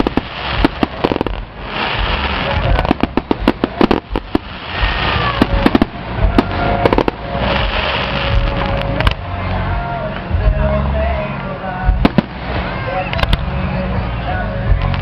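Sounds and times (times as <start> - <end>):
rushing hiss: 0.0 - 8.8
fireworks bangs and crackling: 0.0 - 15.0.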